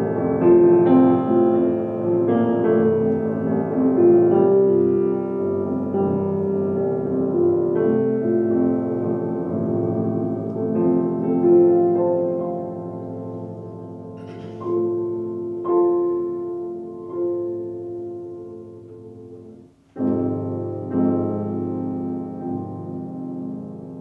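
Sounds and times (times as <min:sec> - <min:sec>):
grand piano playing: 0:00.0 - 0:24.0.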